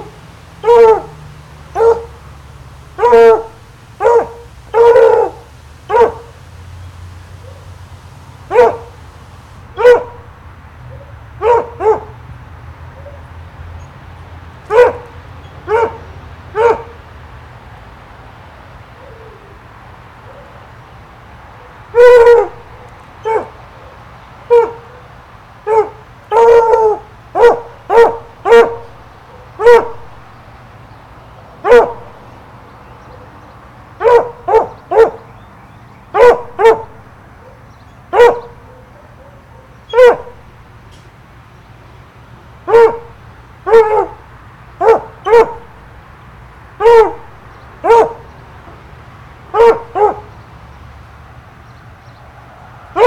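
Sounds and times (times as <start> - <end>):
dog barking: 0.0 - 2.2, 3.0 - 6.4, 7.4 - 7.8, 8.5 - 9.0, 9.7 - 12.2, 14.7 - 17.0, 20.2 - 20.6, 21.6 - 30.4, 31.6 - 32.4, 34.0 - 35.3, 36.1 - 40.5, 42.7 - 45.8, 46.8 - 48.3, 49.5 - 50.3.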